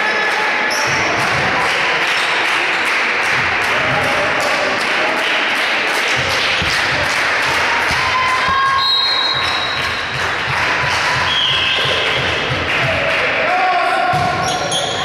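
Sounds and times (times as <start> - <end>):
crowd and hall noise: 0.0 - 15.0
referee whistle: 8.7 - 9.9, 11.3 - 12.2.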